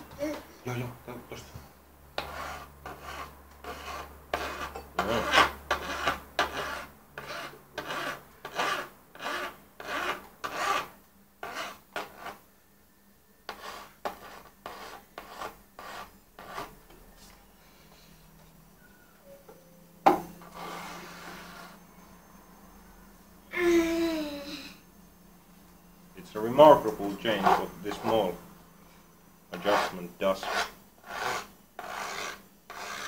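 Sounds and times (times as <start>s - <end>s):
hand file rasping on metal: 2.2s - 12.4s, 29.5s - 33.0s.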